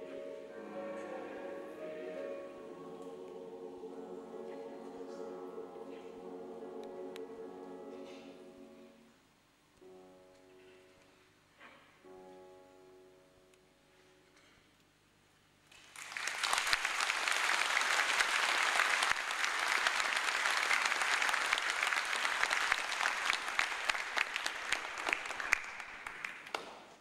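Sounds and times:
audience applauding: 15.7 - 26.9.

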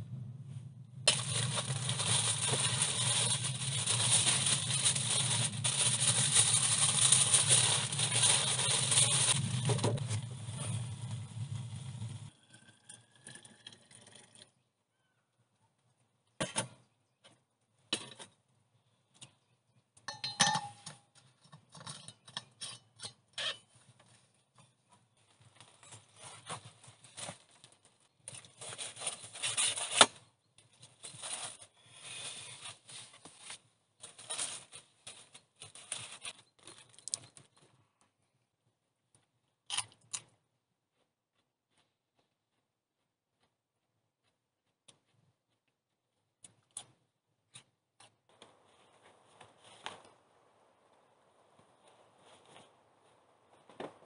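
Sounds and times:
foil packets clicking: 1.1 - 9.9
aluminium foil crinkling: 1.1 - 10.3, 30.8 - 37.5.

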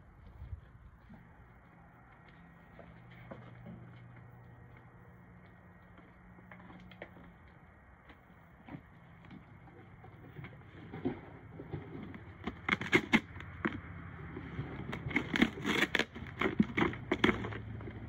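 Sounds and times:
dog chewing cardboard box: 10.2 - 18.0
cardboard ripping: 15.1 - 17.4.

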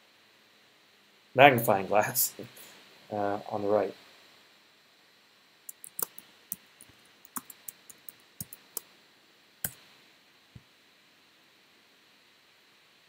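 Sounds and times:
keyboard key clicks: 5.7 - 6.2.

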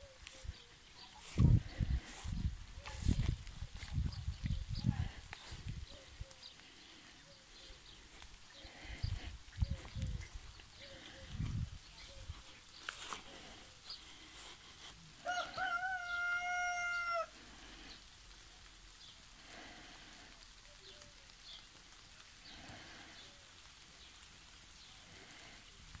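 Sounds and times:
small birds chirping: 0.0 - 16.6, 17.5 - 26.0
soft outdoor hiss: 0.0 - 26.0
rooster crowing: 15.2 - 17.4.

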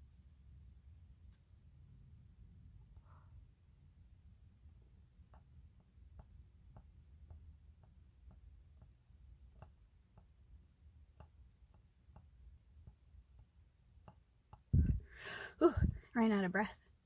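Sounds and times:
low hum: 14.7 - 16.1.

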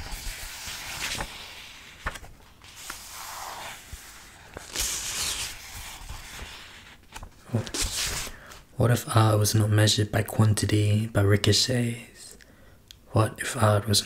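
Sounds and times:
book pages rustling and turning: 0.0 - 8.6.

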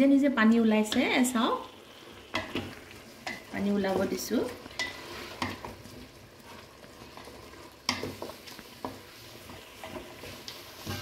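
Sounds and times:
chicken sizzling in a pot: 0.0 - 11.0
spatula scraping and knocking pot: 2.3 - 11.0.

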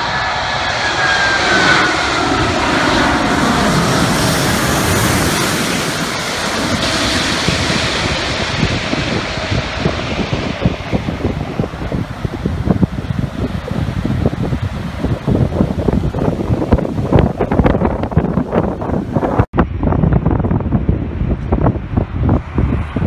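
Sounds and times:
buffeting rumble: 0.0 - 23.0
jet engine whine: 0.0 - 23.0
jet roar: 0.0 - 23.0.

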